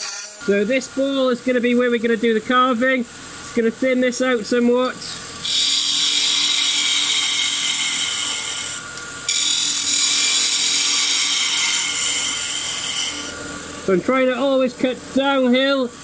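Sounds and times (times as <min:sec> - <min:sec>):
gouge cutting wood hiss: 0:00.0 - 0:00.4, 0:05.4 - 0:13.4
lathe motor hum: 0:05.2 - 0:16.0.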